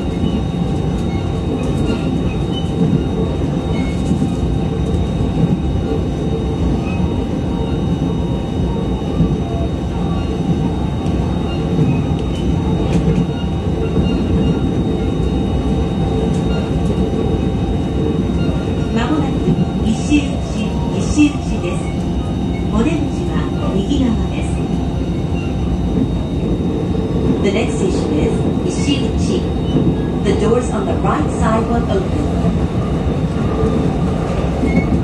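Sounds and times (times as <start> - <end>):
train wheels rumbling on rails: 0.0 - 35.0.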